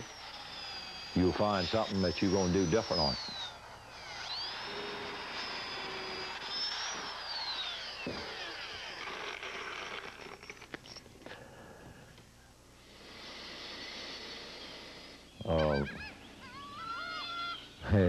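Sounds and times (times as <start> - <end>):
power drill boring into wood: 0.0 - 11.1, 13.0 - 15.9.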